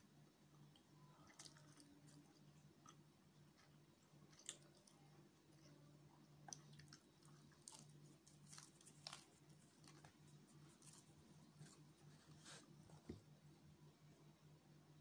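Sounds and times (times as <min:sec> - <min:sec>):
chewing food: 0:00.4 - 0:11.9.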